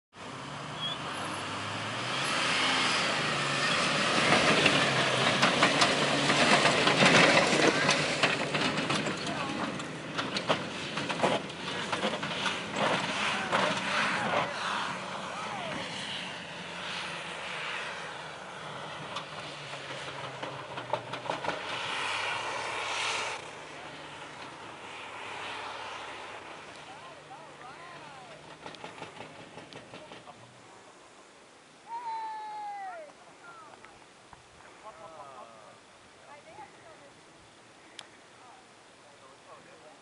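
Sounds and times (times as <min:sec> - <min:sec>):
car engine driving on sand: 0:00.1 - 0:40.0.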